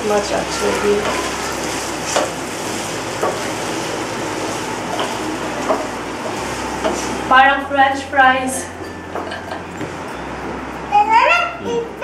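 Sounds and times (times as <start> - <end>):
potatoes sizzling in oil: 0.0 - 8.2.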